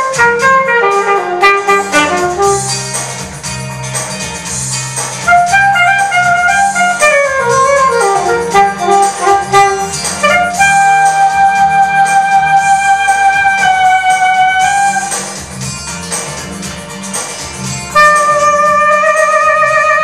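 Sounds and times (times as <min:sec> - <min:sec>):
alto saxophone solo: 0:00.0 - 0:03.3, 0:05.2 - 0:15.7, 0:17.9 - 0:20.0
steady bass accompaniment: 0:00.0 - 0:20.0.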